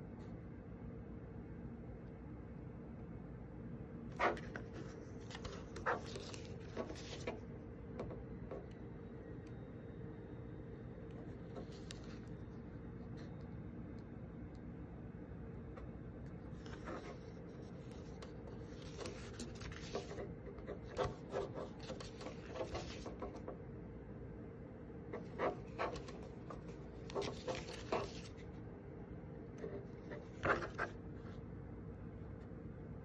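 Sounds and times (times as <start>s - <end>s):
faint steady hum: 0.0s - 33.0s
paper pages rustling: 4.2s - 7.4s, 11.5s - 12.4s, 16.5s - 23.5s, 25.2s - 28.5s, 29.6s - 31.4s.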